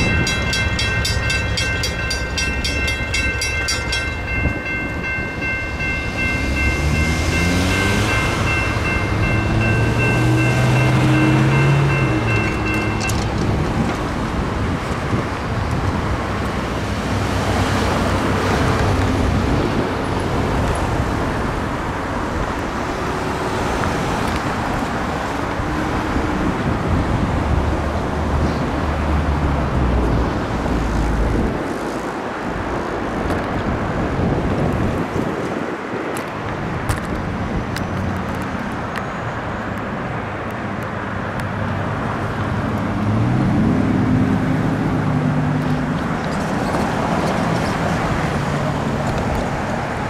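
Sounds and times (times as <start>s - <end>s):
electronic crossing bell: 0.0s - 13.4s
cars driving over railroad crossing: 0.0s - 50.0s.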